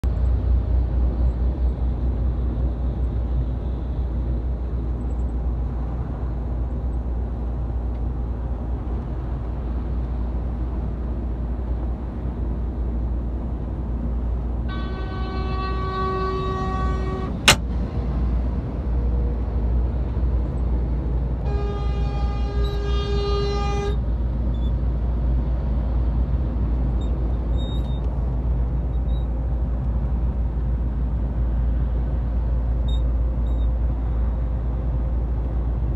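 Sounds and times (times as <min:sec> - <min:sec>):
engine and road rumble: 0:00.0 - 0:35.9
vehicle horn blasts: 0:14.7 - 0:17.6, 0:21.4 - 0:24.0.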